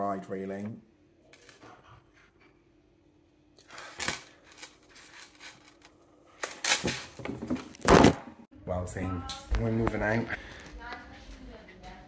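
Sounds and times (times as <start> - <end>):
metal chain clicking and rubbing: 3.7 - 5.9.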